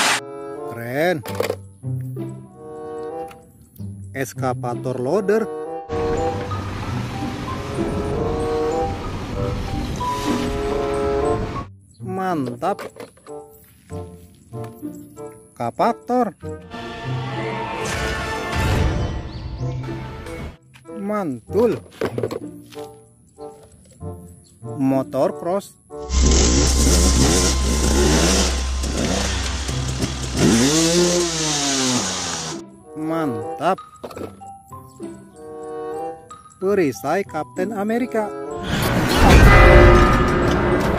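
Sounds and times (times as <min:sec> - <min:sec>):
background music melody: 0:00.2 - 0:17.2, 0:19.0 - 0:40.9
dirt bike engines revving: 0:26.1 - 0:32.6.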